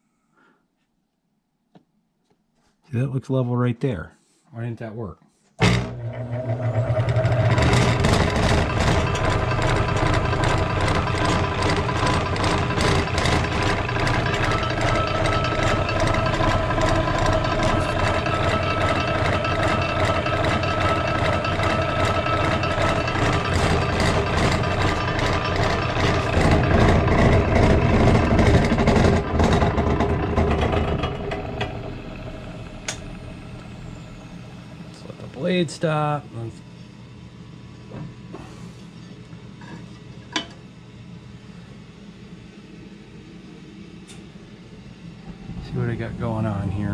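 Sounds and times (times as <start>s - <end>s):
electric motor humming: 5.6s - 36.1s
fast ticking rattle: 7.5s - 31.6s.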